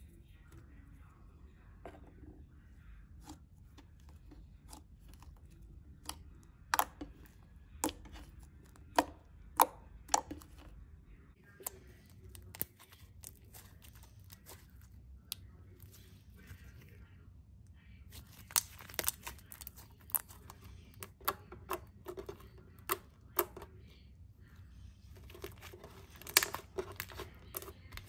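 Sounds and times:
slime clicking and popping: 0:06.0 - 0:07.1, 0:08.9 - 0:10.6, 0:18.3 - 0:20.3, 0:25.4 - 0:28.0.

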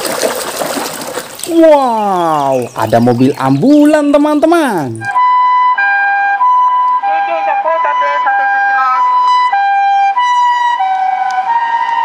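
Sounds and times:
two-tone ambulance siren: 0:05.1 - 0:12.0.

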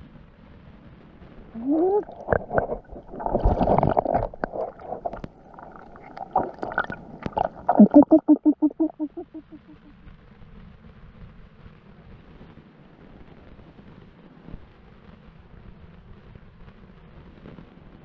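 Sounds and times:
underwater gurgling and bubbling: 0:01.6 - 0:09.9
underwater clicks and knocks: 0:02.0 - 0:08.2.

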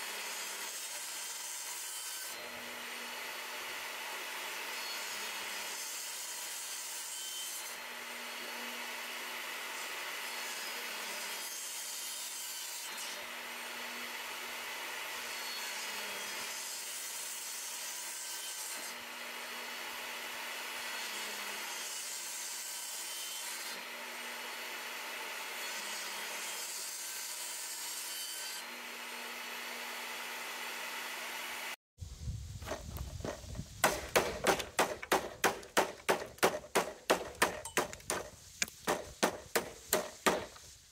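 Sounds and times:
table saw cutting wood: 0:00.0 - 0:31.8
rubber mallet knocking wood: 0:33.8 - 0:40.5.

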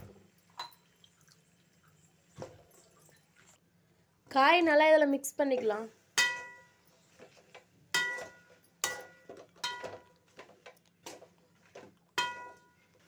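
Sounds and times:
metal spatula knocking pan: 0:06.2 - 0:06.7, 0:07.9 - 0:10.0, 0:12.2 - 0:12.7.

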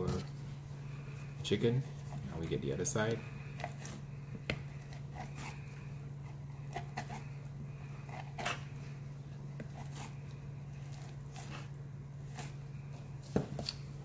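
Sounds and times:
steady low hum: 0:00.0 - 0:14.0
knife scraping raw chicken skin: 0:03.2 - 0:09.0, 0:09.6 - 0:12.9.

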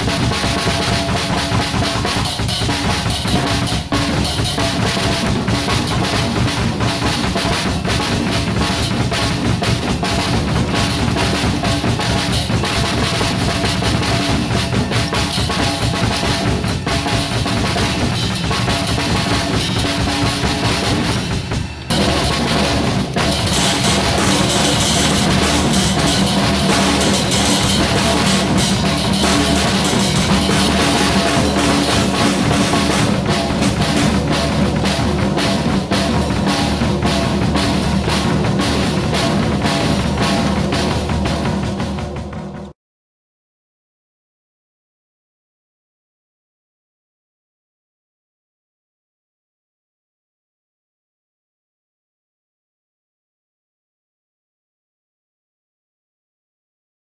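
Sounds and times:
drum kit playing: 0:00.0 - 0:42.7
cymbals ringing: 0:23.5 - 0:32.4.

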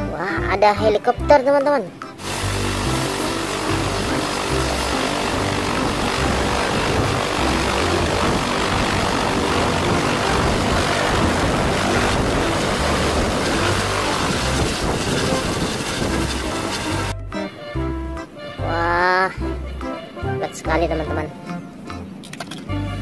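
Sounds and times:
helicopter turbine and rotor: 0:02.2 - 0:17.2.

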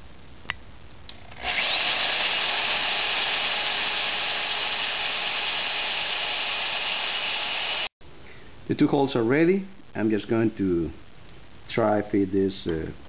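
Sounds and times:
electric drill boring into metal: 0:01.4 - 0:07.9.

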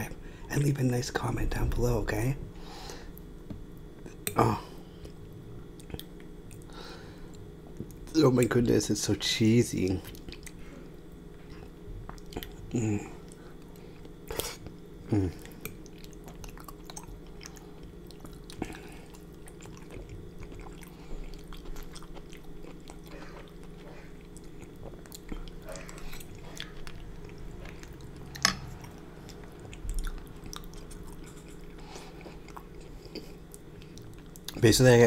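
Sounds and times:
close chewing and mouth sounds: 0:03.1 - 0:08.8, 0:09.8 - 0:34.7.

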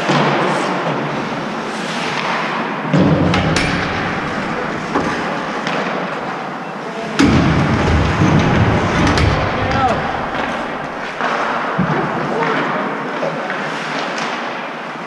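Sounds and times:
skates on ice: 0:00.0 - 0:03.2, 0:07.8 - 0:15.0
hockey sticks and puck clacking: 0:01.1 - 0:06.4, 0:07.1 - 0:15.0
heavy thuds: 0:03.3 - 0:05.4, 0:07.2 - 0:11.3.

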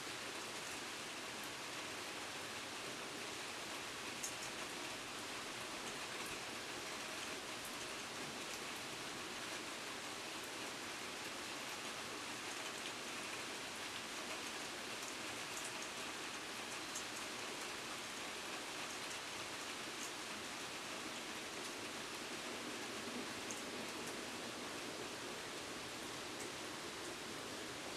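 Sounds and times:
steady rain falling: 0:00.0 - 0:27.9
small drip ticks: 0:04.2 - 0:04.7, 0:14.3 - 0:16.0, 0:19.9 - 0:20.2.

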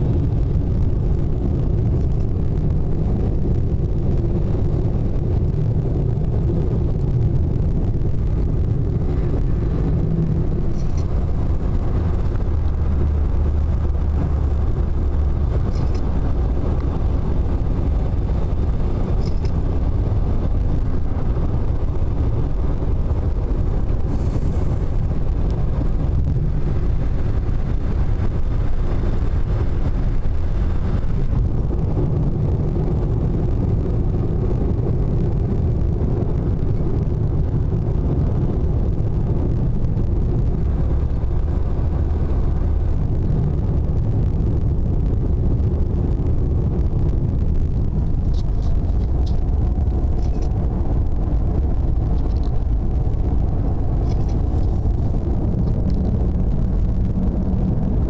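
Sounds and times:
car driving heard from inside: 0:00.0 - 0:58.0.

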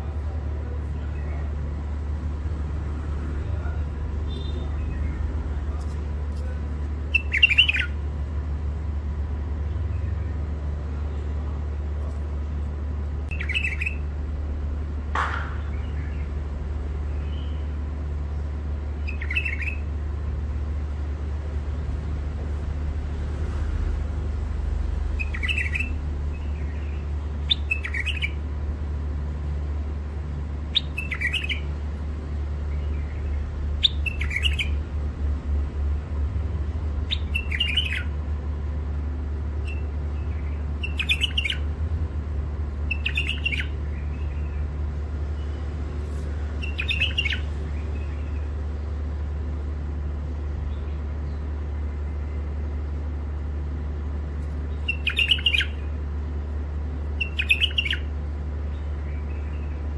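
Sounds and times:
steady low hum: 0:00.0 - 0:59.9
bulbul chirping: 0:07.1 - 0:08.0, 0:13.3 - 0:14.0, 0:25.2 - 0:26.0, 0:27.5 - 0:28.4, 0:30.7 - 0:31.7, 0:33.8 - 0:34.8, 0:37.0 - 0:38.1, 0:39.6 - 0:41.7, 0:42.7 - 0:44.6, 0:46.6 - 0:48.4, 0:54.7 - 0:55.9, 0:57.2 - 0:58.1.

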